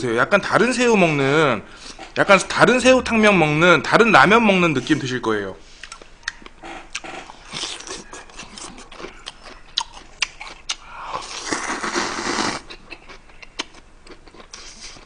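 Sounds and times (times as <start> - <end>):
chewing: 5.8 - 15.0
noodles slurped: 10.2 - 12.8.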